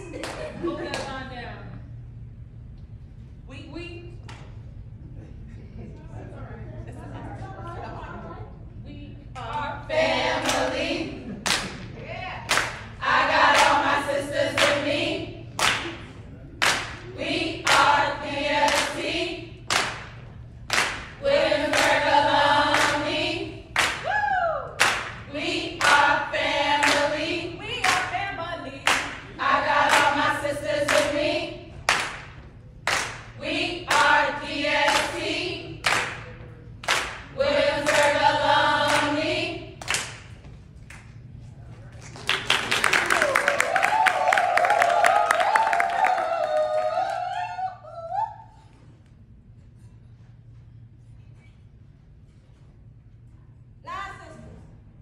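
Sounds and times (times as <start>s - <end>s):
women singing a chant: 9.4s - 11.4s, 13.0s - 15.4s, 17.2s - 19.6s, 21.2s - 31.8s, 33.4s - 35.9s, 37.3s - 39.8s
sharp hand claps: 12.5s - 12.9s, 15.6s - 17.0s, 19.7s - 22.0s, 23.8s - 24.1s, 24.8s - 25.2s, 28.9s - 29.2s, 31.9s - 34.1s, 35.8s - 37.3s, 39.8s - 41.1s.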